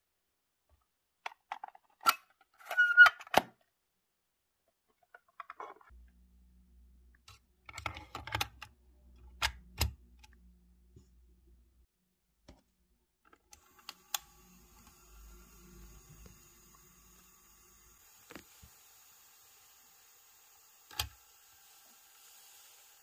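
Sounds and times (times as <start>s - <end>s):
squeaky creak: 2.6s - 3.3s.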